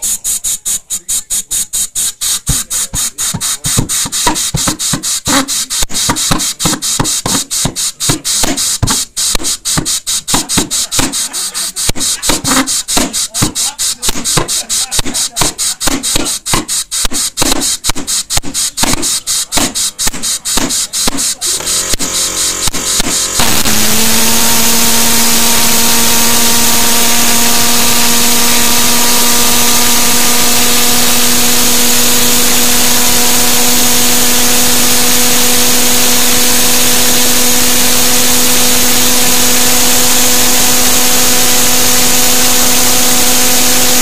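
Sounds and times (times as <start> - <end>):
compressed air hissing: 0.0 - 44.0
engine fuel pops: 14.1 - 23.7.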